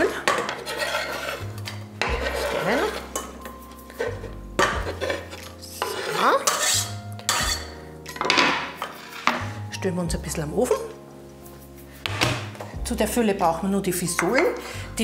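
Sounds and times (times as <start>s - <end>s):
knife and board clinking on pot: 0.0s - 9.5s
knife scraping cutting board: 0.3s - 7.7s.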